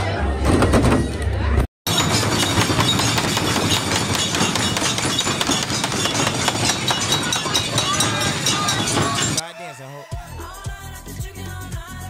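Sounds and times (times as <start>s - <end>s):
clatter of sharp claps and knocks: 1.9s - 9.4s.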